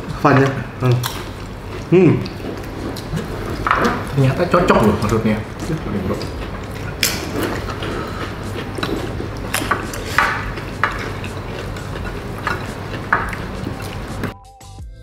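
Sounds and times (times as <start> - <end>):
low room hum: 0.0 - 14.4
cutlery clinking on plates: 7.0 - 14.3.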